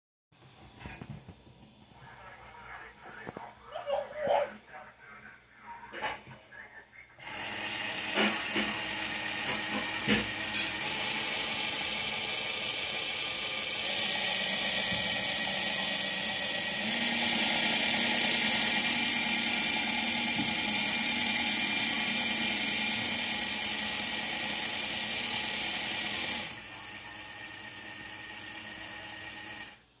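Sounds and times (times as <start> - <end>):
model engine motor whining: 7.2 - 29.8.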